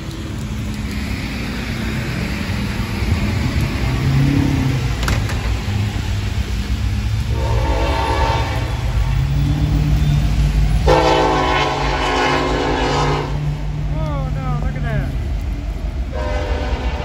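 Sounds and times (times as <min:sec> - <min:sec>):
low engine rumble: 0:00.0 - 0:17.0
locomotive air horn blasts: 0:07.3 - 0:09.1, 0:10.8 - 0:13.5, 0:16.1 - 0:17.0.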